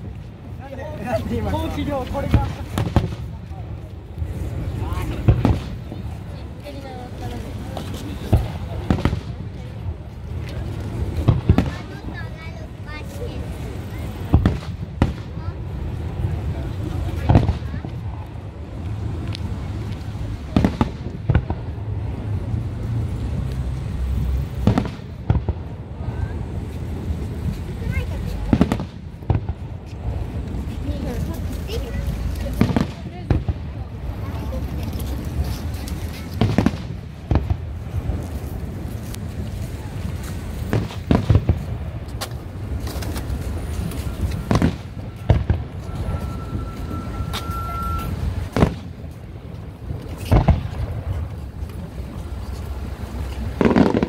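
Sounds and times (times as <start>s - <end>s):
steady low rumble: 0.0s - 54.0s
sharp firework bangs: 2.2s - 3.4s, 5.0s - 6.0s, 14.3s - 15.6s, 24.6s - 25.8s, 28.5s - 30.2s, 32.5s - 33.8s, 36.3s - 38.2s, 40.7s - 42.0s, 44.4s - 45.8s, 48.4s - 49.1s, 50.2s - 51.2s, 53.4s - 54.0s
rumble of firework booms: 53.5s - 54.0s.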